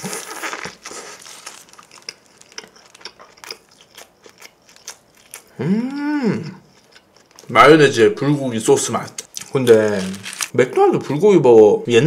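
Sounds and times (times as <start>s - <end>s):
paper wrapper crinkling: 0.0s - 3.0s, 9.3s - 10.6s
biting into a burger: 0.0s - 7.5s
close chewing: 0.0s - 7.6s.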